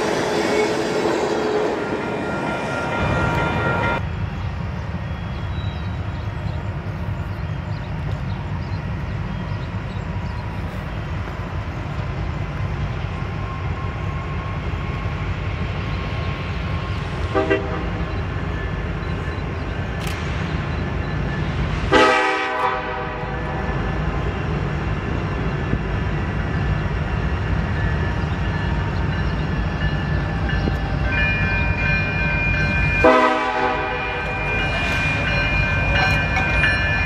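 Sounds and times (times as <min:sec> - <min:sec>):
diesel locomotive rumbling: 0:00.0 - 0:37.0
locomotive horn: 0:17.3 - 0:18.1, 0:21.9 - 0:23.6, 0:33.0 - 0:36.8.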